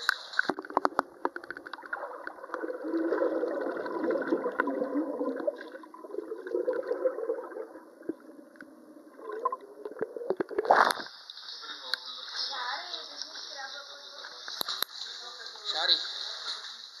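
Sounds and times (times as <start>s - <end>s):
muffled underwater water churning: 0.0s - 11.3s.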